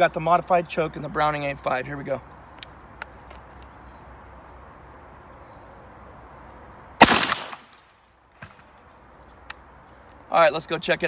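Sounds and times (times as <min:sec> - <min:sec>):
shotgun shot: 0:07.0 - 0:07.8.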